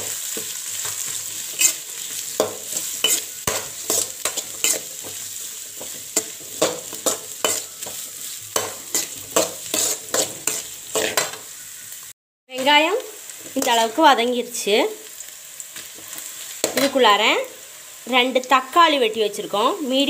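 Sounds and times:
oil sizzling: 0.0s - 20.0s
spoon scraping metal pan: 0.4s - 11.5s.

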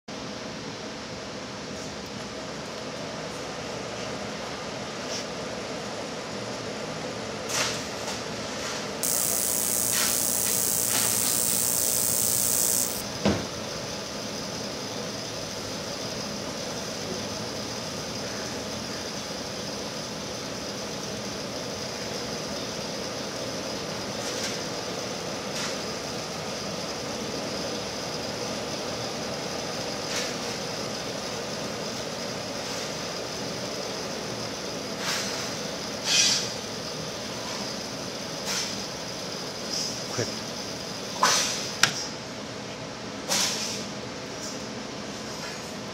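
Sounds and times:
loud high hiss: 9.0s - 13.0s.

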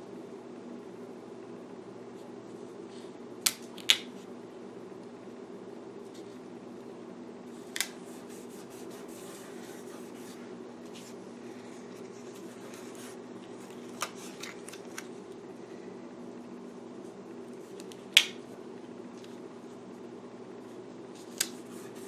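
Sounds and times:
steady low hum: 0.0s - 22.0s
fingertip rubbing paper: 8.0s - 11.2s, 21.5s - 22.0s.

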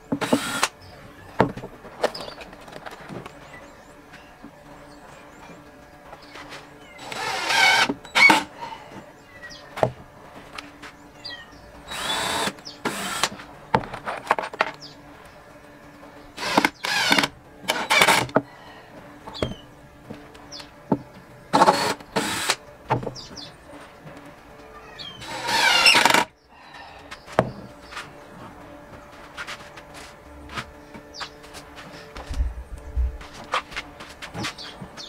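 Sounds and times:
birds chirping: 0.0s - 35.0s
cordless drill spinning up: 0.2s - 0.7s, 7.0s - 8.5s, 11.9s - 13.3s, 16.4s - 18.3s, 25.2s - 26.3s.

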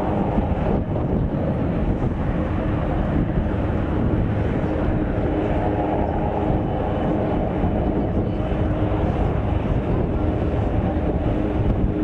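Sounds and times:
aircraft engine drone: 0.0s - 12.0s.

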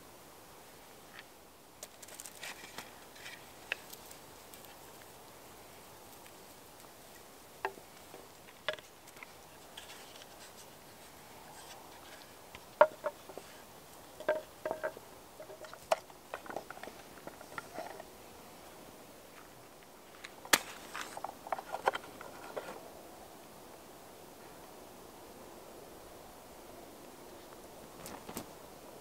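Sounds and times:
wooden camp gear knocking: 12.6s - 13.5s, 14.2s - 18.0s.

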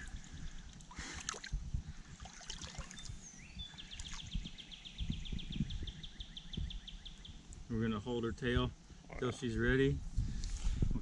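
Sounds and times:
water sloshing and lapping: 0.0s - 3.2s.

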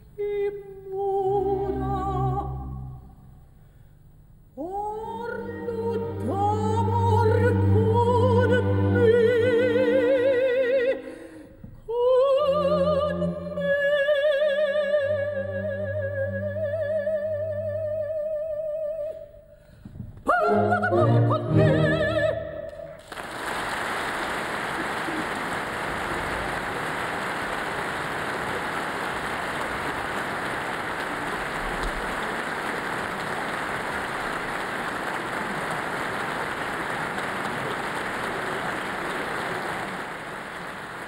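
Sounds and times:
orchestra and singer chord: 4.9s - 11.0s
audience applauding: 23.0s - 41.0s.

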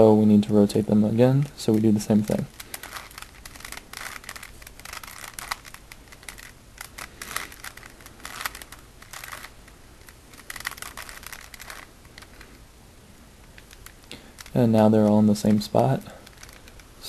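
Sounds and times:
puzzle cube clicking turns: 1.4s - 12.7s, 13.3s - 14.7s, 15.4s - 17.0s.

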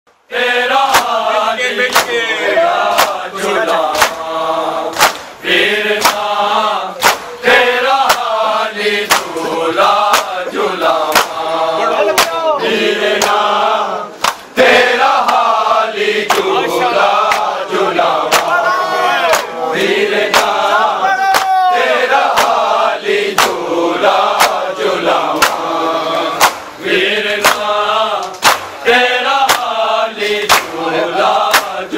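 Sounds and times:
men chanting in unison: 0.3s - 31.9s
hands slapping on chests: 0.8s - 2.2s, 2.8s - 4.3s, 4.9s - 5.4s, 6.0s - 6.4s, 7.0s - 8.4s, 9.0s - 9.4s, 10.0s - 11.5s, 12.1s - 12.4s, 13.2s - 13.5s, 14.2s - 14.5s, 15.2s - 15.5s, 16.3s - 16.5s, 17.2s - 17.5s, 18.2s - 18.6s, 19.3s - 20.6s, 21.3s - 21.6s, 22.2s - 22.7s, 23.3s - 23.6s, 24.3s - 24.7s, 25.3s - 25.8s, 26.4s - 28.8s, 29.4s - 30.8s, 31.4s - 31.8s.

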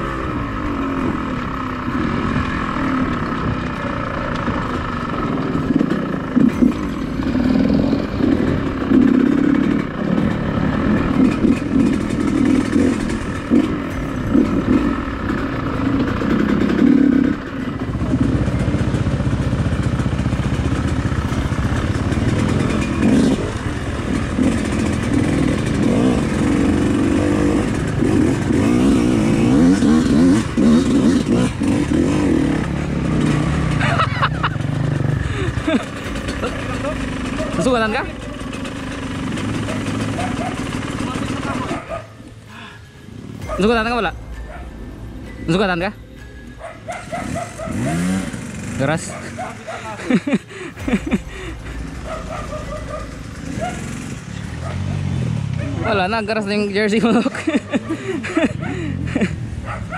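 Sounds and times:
dirt bike engine revving: 0.0s - 44.8s, 46.6s - 59.9s
deep steady drone: 41.7s - 55.5s.

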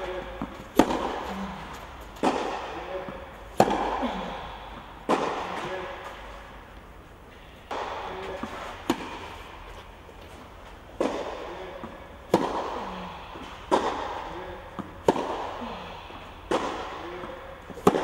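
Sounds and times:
tennis racket strikes echoing: 0.0s - 18.0s.

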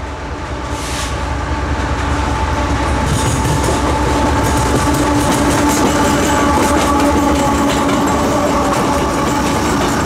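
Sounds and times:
diesel locomotive engine rumble: 0.0s - 10.0s
train wheels clattering on rails: 2.7s - 10.0s.

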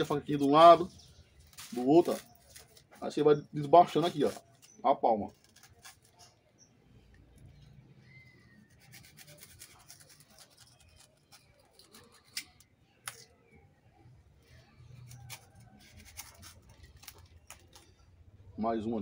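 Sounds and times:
knife sawing through banana stem: 8.6s - 12.4s.

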